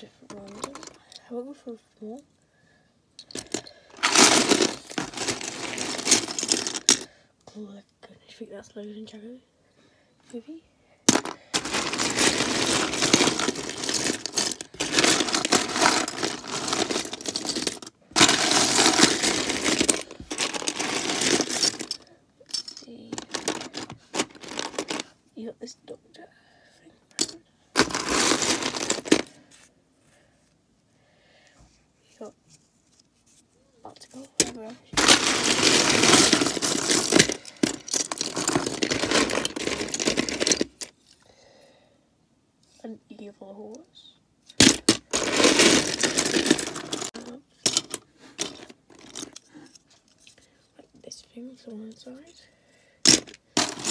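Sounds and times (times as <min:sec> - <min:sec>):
plastic toy pieces clattering: 0:00.0 - 0:01.2, 0:03.2 - 0:07.1, 0:11.1 - 0:25.1, 0:27.2 - 0:29.4, 0:34.0 - 0:41.0, 0:44.5 - 0:50.4, 0:53.0 - 0:53.9.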